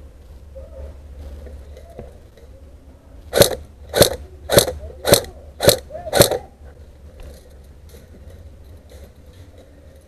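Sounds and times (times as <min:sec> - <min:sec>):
airsoft rifle shots: 0:03.3 - 0:06.5.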